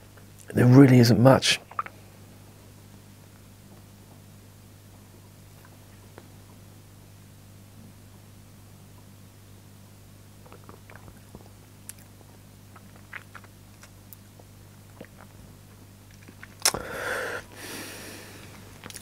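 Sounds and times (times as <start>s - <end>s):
low steady hum: 0.0s - 19.0s
mouth clicks and lip smacks: 1.6s - 2.0s, 10.4s - 16.8s, 18.8s - 19.0s
breathy rush: 16.8s - 18.6s.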